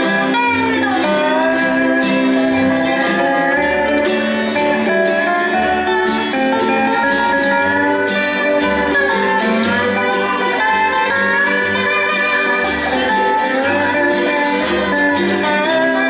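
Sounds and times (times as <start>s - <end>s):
slide guitar notes: 0.0s - 16.0s.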